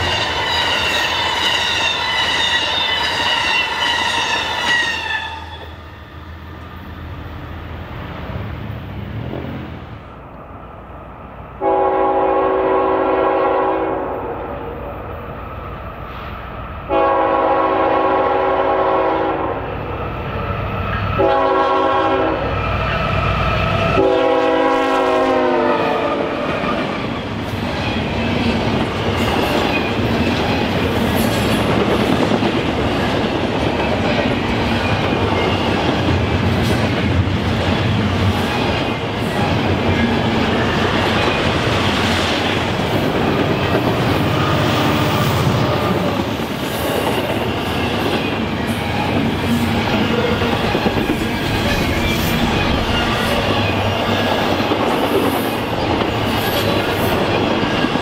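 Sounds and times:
locomotive air horn: 0.4 - 5.7, 11.6 - 14.4, 16.9 - 19.6, 21.2 - 22.5, 24.0 - 26.4
train wheels clacking on rails: 23.7 - 58.0.

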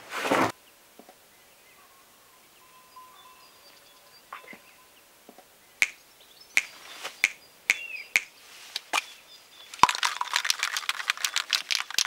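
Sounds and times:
sharp snaps: 5.8 - 6.0, 6.6 - 9.1
plastic crinkling rustle: 9.7 - 12.0.

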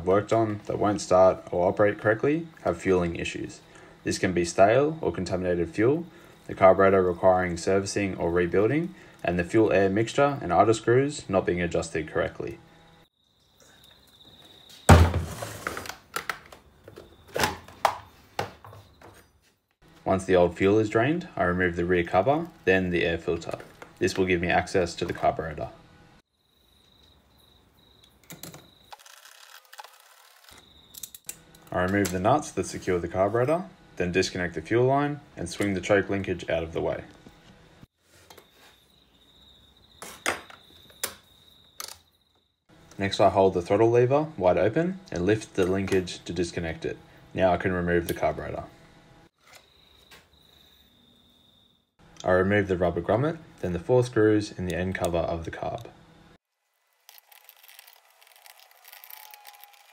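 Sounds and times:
chainsaw thunk on workbench: 14.9 - 15.6.

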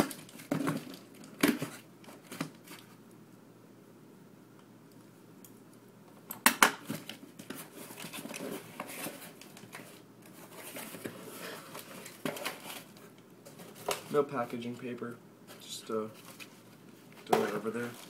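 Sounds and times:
wrapping rustling and crinkling: 6.9 - 14.7, 15.5 - 18.0.

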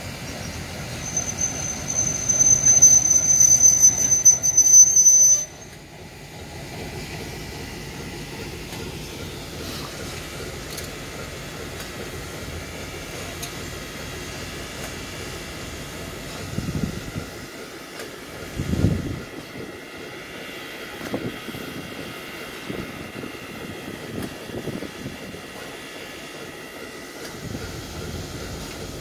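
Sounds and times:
locomotive rolling by: 0.0 - 29.0
high-pitched wheel squeal: 0.3 - 5.8.

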